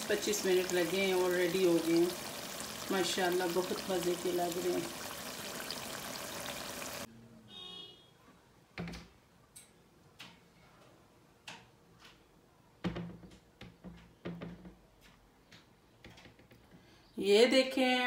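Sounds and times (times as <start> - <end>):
curry sizzling in a pan: 0.0 - 7.1.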